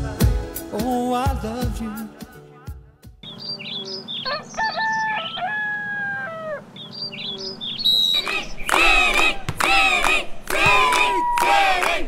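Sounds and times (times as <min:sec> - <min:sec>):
small birds chirping: 0:03.2 - 0:09.1
rooster crowing: 0:04.2 - 0:06.9
crowd shouting: 0:08.1 - 0:12.0.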